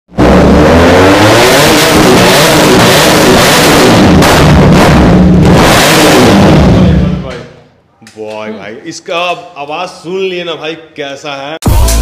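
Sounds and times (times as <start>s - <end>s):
motorcycle engine revving: 0.1s - 7.6s.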